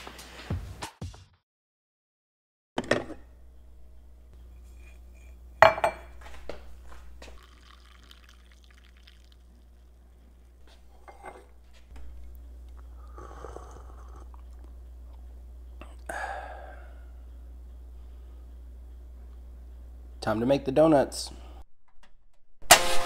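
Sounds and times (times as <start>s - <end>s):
glass carafe clinking: 5.6s - 6.1s
coffee pouring into a mug: 7.2s - 10.0s.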